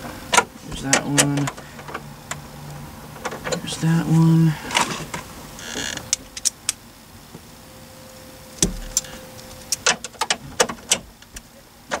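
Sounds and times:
dull thump: 0:08.6 - 0:09.0.

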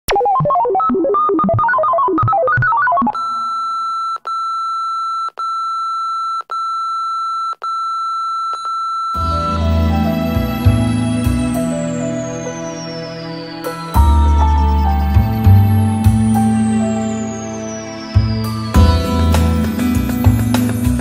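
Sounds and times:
high countdown beep tone: 0:00.2 - 0:03.8
electronic keyboard notes: 0:09.2 - 0:21.0
music with deep low swell: 0:09.2 - 0:21.0.

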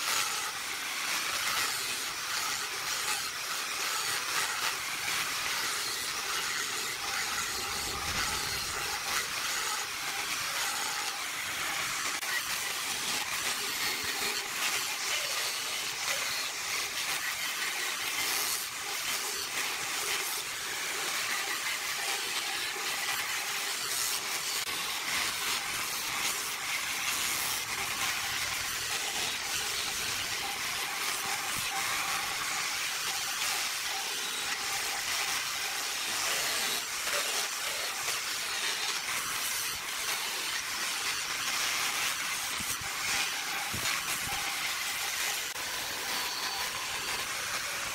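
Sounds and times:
sanding drum hissing on wood: 0:00.0 - 0:47.9.

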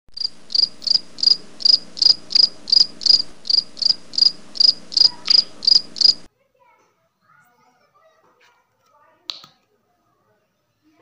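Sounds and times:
cricket chirping: 0:00.1 - 0:06.3.

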